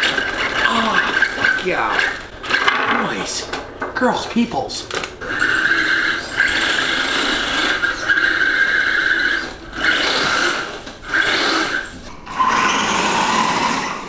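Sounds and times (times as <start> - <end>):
toy car electric motor whining: 0.0 - 2.6, 5.2 - 14.0.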